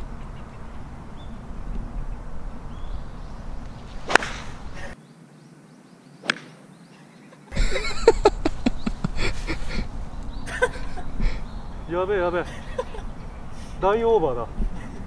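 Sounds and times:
golf club striking ball: 0:02.7 - 0:05.0, 0:06.2 - 0:06.6.

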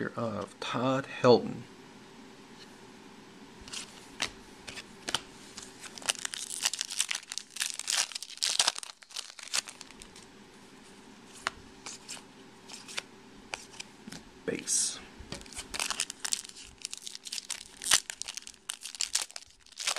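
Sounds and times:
foil wrapper tearing and crinkling: 0:05.6 - 0:10.2, 0:15.4 - 0:19.9.

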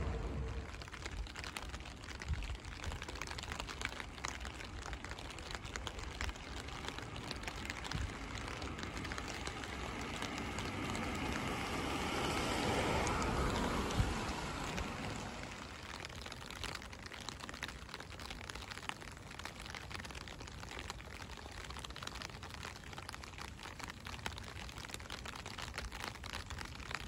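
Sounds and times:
broad rushing noise: 0:00.0 - 0:01.3, 0:07.0 - 0:16.1
raindrops ticking on surfaces: 0:00.0 - 0:27.0.

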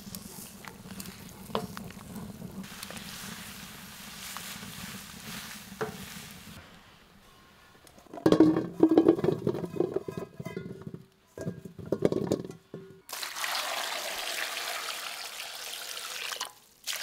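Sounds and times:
food sizzling in pan: 0:00.0 - 0:06.6, 0:13.1 - 0:17.0.

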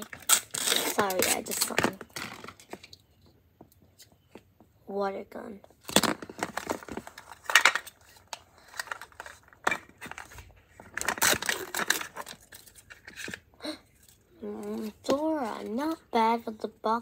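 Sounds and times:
plastic packaging tearing and crinkling: 0:00.0 - 0:02.9, 0:05.8 - 0:13.4.

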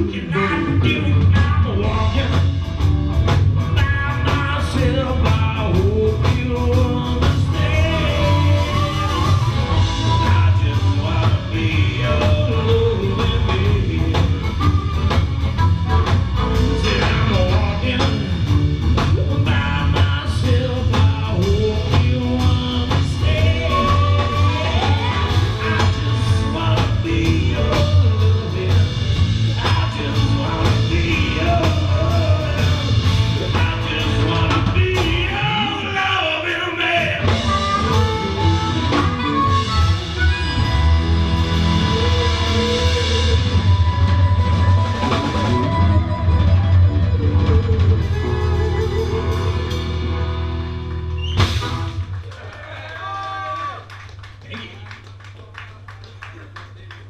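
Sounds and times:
blues-rock band playing: 0:00.0 - 0:52.3
person singing: 0:03.7 - 0:14.9, 0:15.6 - 0:18.5, 0:19.1 - 0:46.5.

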